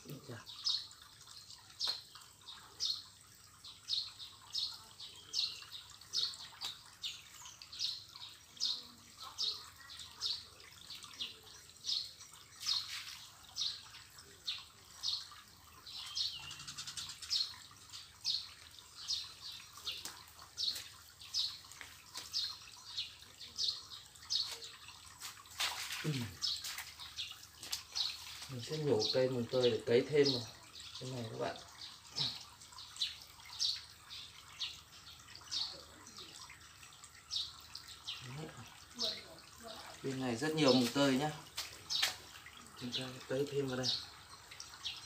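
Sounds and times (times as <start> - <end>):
bird chirping: 1.8 - 24.9.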